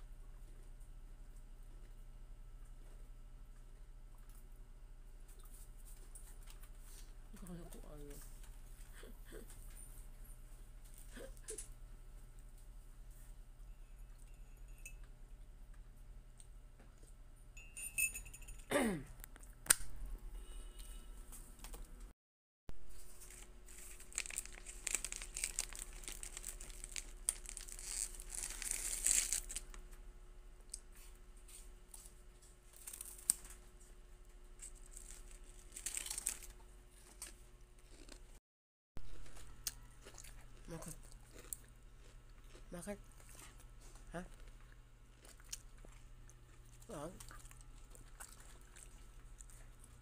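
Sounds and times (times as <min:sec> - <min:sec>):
plastic wrapper crinkling: 0:22.9 - 0:29.8, 0:34.6 - 0:36.6.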